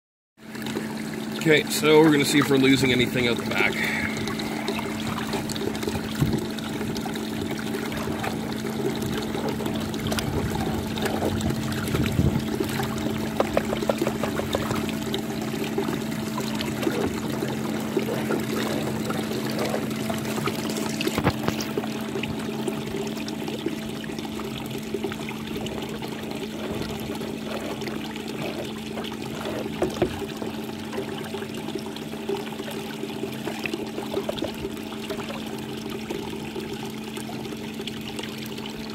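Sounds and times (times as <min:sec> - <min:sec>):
water sloshing in pan: 0:00.4 - 0:38.9
low hum: 0:02.9 - 0:32.0.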